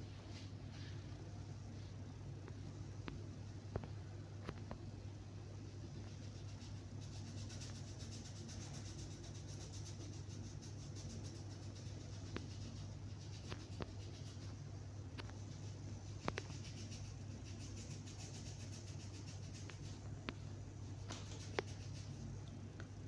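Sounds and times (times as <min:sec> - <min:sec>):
faint low hum: 0:00.0 - 0:23.0.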